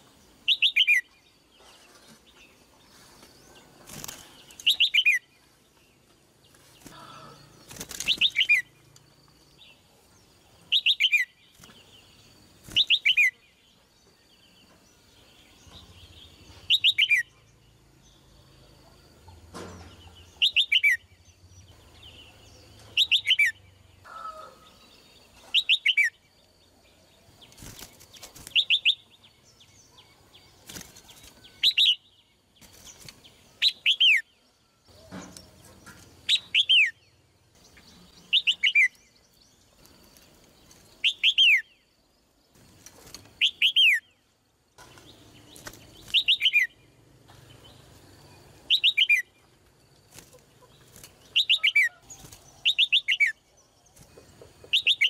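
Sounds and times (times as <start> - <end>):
bulbul calling: 20.0 - 21.2, 34.9 - 39.1, 43.4 - 44.1, 44.8 - 47.8, 48.6 - 49.4, 50.2 - 53.4, 54.2 - 55.0.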